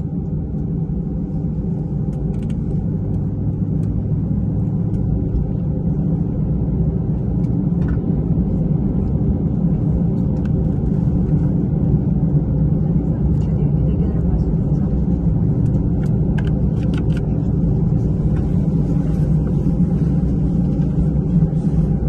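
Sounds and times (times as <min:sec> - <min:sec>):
airplane engine rumble in cabin: 0:00.0 - 0:22.0.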